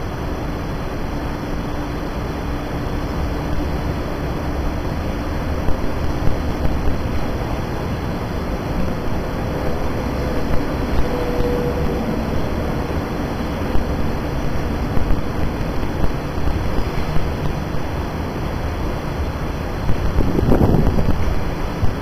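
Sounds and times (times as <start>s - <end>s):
faint steady hum: 0.0s - 22.0s
train rumbling past: 0.0s - 22.0s.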